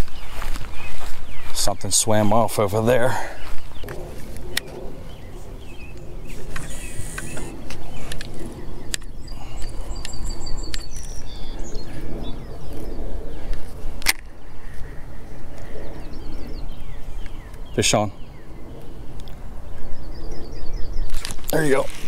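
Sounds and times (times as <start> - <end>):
bird chirps: 0.0 - 2.6, 3.2 - 13.1, 15.7 - 22.0
fishing reel line hiss: 6.3 - 7.5.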